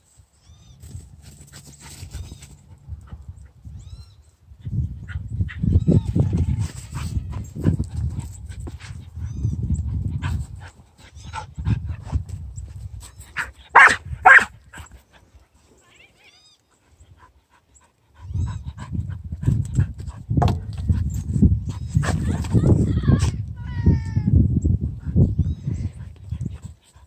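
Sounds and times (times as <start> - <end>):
dog barking: 13.8 - 14.5.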